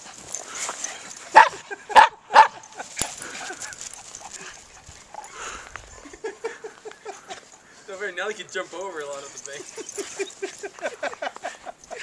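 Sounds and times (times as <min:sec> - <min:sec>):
dog barking: 0:01.3 - 0:02.6.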